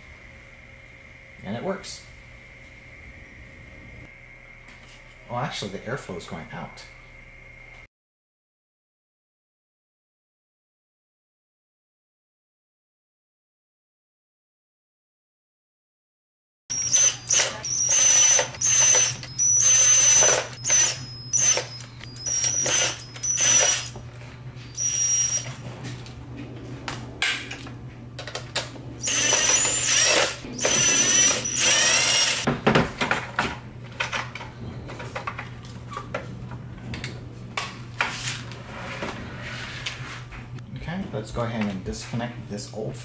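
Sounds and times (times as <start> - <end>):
cordless power driver whining: 16.7 - 25.6, 29.0 - 32.5.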